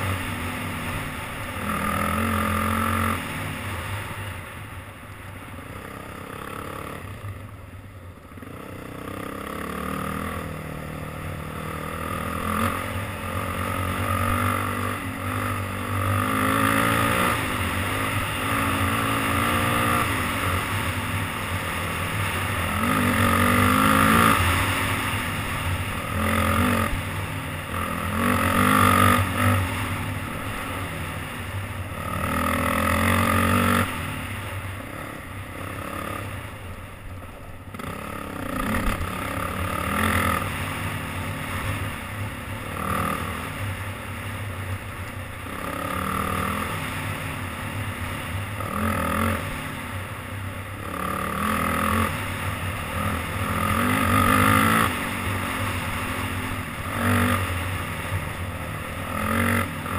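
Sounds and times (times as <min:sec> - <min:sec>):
quad bike engine revving: 0:00.0 - 0:04.5, 0:05.6 - 0:07.2, 0:08.3 - 0:36.6, 0:37.7 - 0:44.4, 0:45.4 - 0:50.0, 0:50.6 - 0:59.9.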